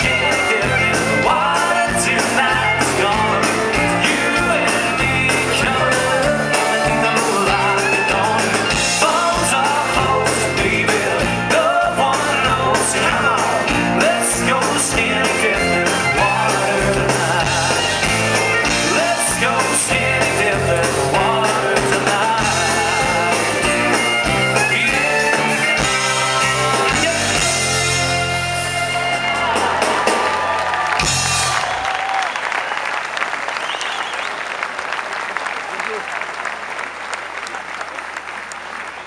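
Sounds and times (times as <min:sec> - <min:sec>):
man singing: 0:00.0 - 0:30.3
live country-rock band: 0:00.0 - 0:33.6.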